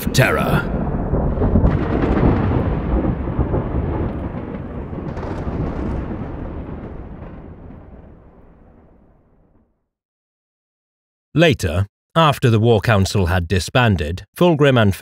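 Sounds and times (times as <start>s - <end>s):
rolling thunder: 0.0s - 9.8s
thunder crackles: 0.0s - 9.8s.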